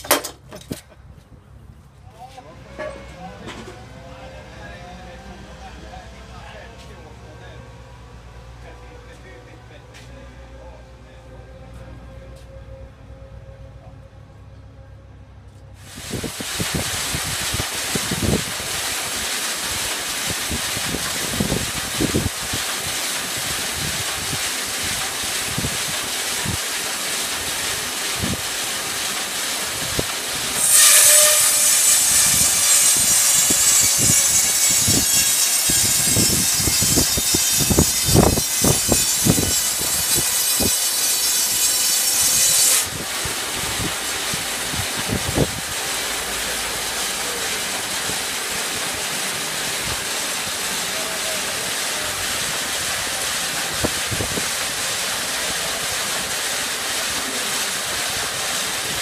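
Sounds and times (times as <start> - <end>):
band saw running: 15.8 - 59.0
saw blade cutting log: 29.1 - 44.7.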